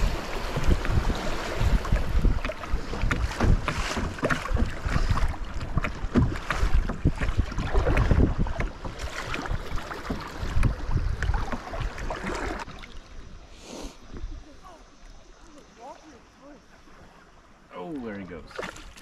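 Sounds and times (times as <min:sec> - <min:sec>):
wind buffeting microphone: 0:00.0 - 0:12.7
paddle strokes splashing: 0:00.0 - 0:19.0
river water rushing along hull: 0:00.0 - 0:19.0.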